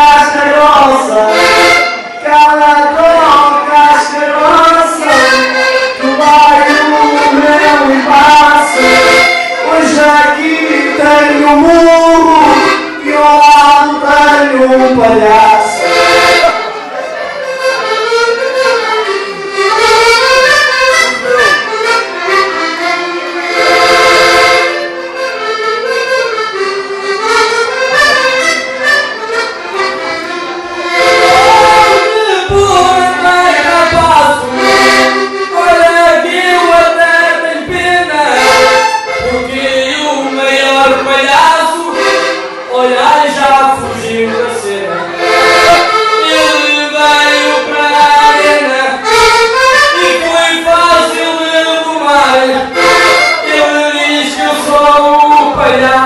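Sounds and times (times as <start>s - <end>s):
men singing: 0.0s - 1.6s, 2.2s - 16.5s, 31.1s - 45.0s, 46.2s - 49.2s, 50.0s - 56.0s
button accordion playing lively tune: 0.0s - 56.0s.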